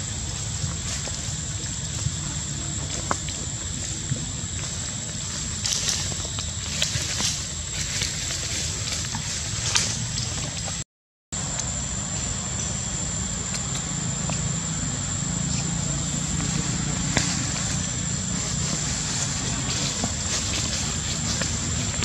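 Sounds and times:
high-pitched whine: 11.4 - 22.0.

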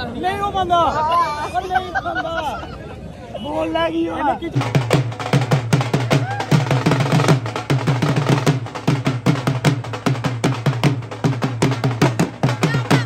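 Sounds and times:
drums in a fast rhythm: 4.4 - 13.0.

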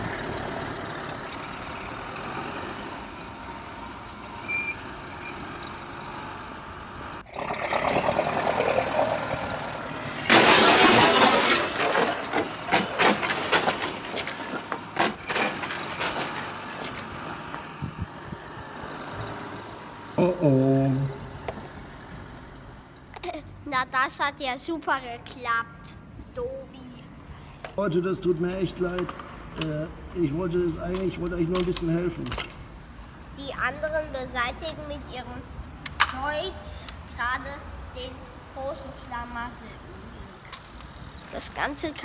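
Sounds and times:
engine noise: 0.0 - 23.0
wooden blocks crashing down: 10.2 - 17.1.

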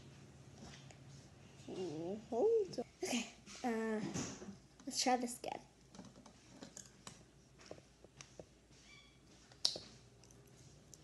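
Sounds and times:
faint high squeak: 8.8 - 9.3.

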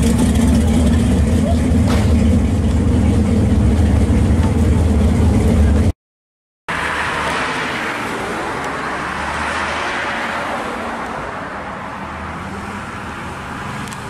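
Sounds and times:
car engine running: 0.0 - 5.9
tyre and road noise: 0.0 - 6.0, 6.7 - 14.0.

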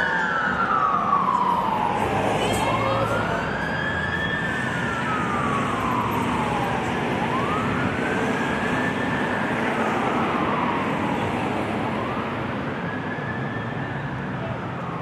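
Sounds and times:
road noise: 0.0 - 15.0
siren wailing: 0.0 - 15.0.

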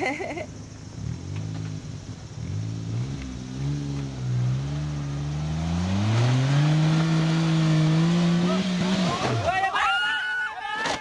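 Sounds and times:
car engine revving: 0.7 - 9.5.

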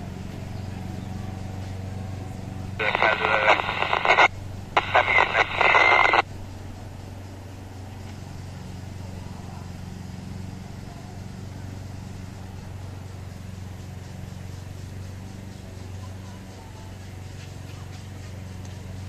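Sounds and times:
faint low hum: 0.0 - 19.0
buzzy radio signal with high tone: 2.8 - 6.3.

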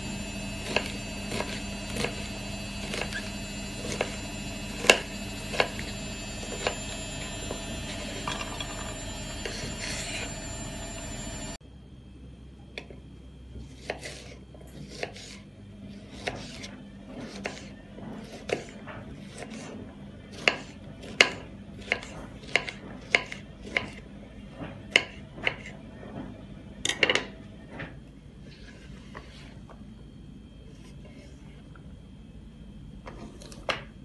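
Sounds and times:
knife chopping on cutting board: 0.6 - 5.9, 13.6 - 15.4, 16.0 - 19.7, 20.3 - 24.0, 24.9 - 25.7.

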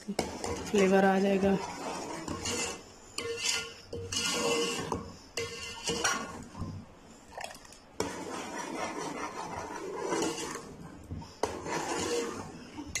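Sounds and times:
metal ladle scraping pot: 0.0 - 6.9, 8.0 - 13.0.

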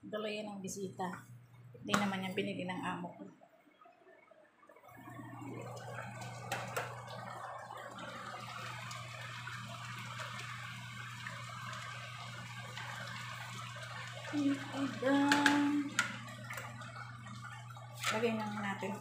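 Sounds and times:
sauce bubbling and sizzling: 5.0 - 18.8.

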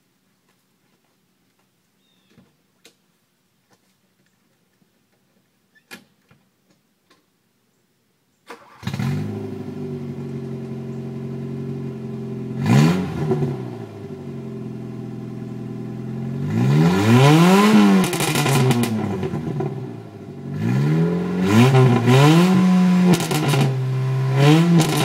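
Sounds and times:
car engine cranking and idling: 8.5 - 25.0
engine revving: 8.6 - 25.0.

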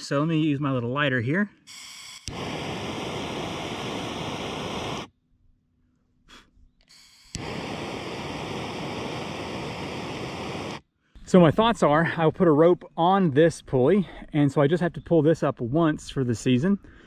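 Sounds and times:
lighter ignition click: 1.7 - 2.5, 6.9 - 7.6
torch lighter hissing: 1.7 - 5.1, 6.9 - 10.8.

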